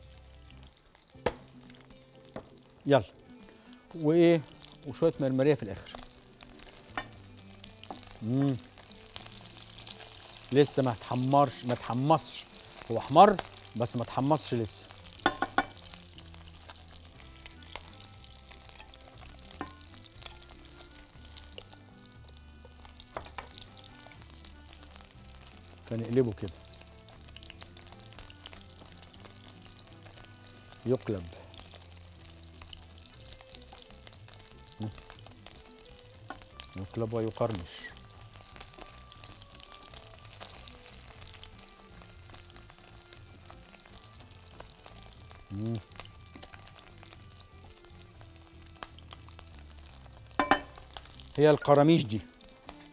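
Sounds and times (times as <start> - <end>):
chicken skin sizzling in oil: 0.0 - 52.9.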